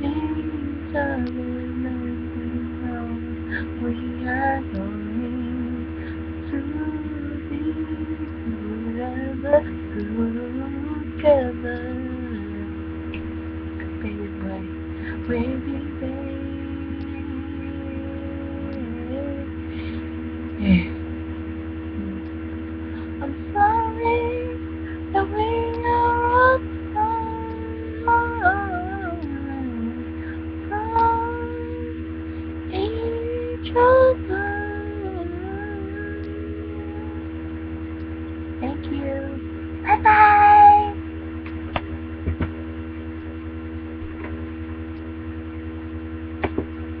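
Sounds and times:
woman singing long notes: 0.0s - 12.7s, 13.8s - 21.0s, 23.0s - 32.0s, 32.7s - 37.3s, 38.6s - 41.0s
electrical hum: 0.0s - 47.0s.

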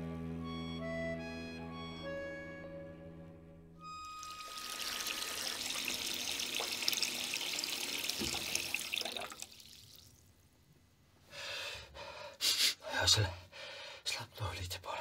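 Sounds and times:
tap water pouring into bathtub: 4.2s - 10.3s.

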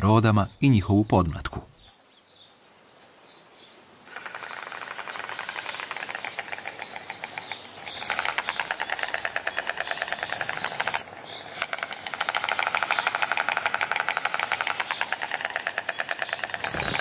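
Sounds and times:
storks clattering bills: 4.1s - 17.0s.

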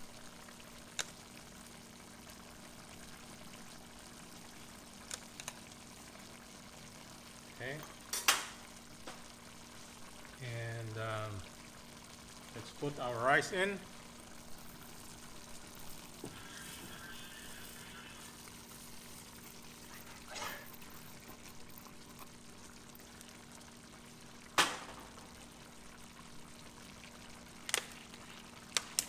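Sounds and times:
rice pouring into a pot: 13.8s - 24.1s.

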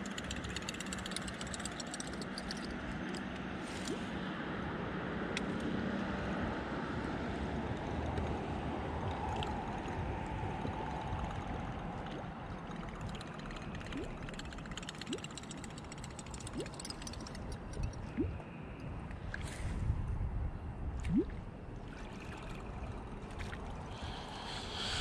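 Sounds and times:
water sloshing along boat hull: 20.8s - 25.0s.

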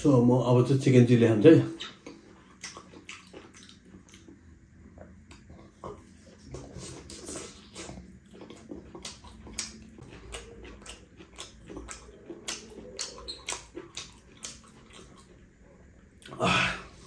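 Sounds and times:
person chewing food: 1.7s - 17.0s.

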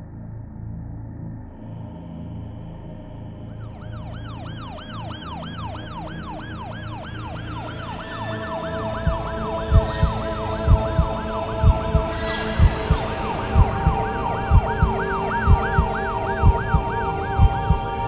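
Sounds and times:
siren wailing: 3.5s - 18.0s
deep rhythmic thumps: 8.8s - 18.0s.

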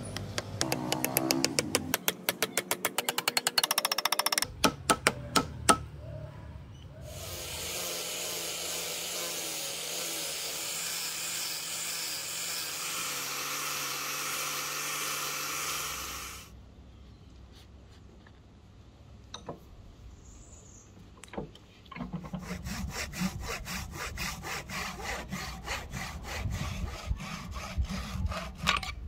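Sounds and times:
angle grinder sanding wood: 7.1s - 16.5s, 22.2s - 28.7s.

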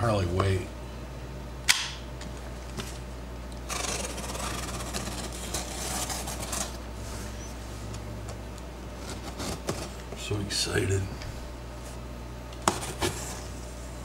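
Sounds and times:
knife slicing packing tape: 3.7s - 6.7s.

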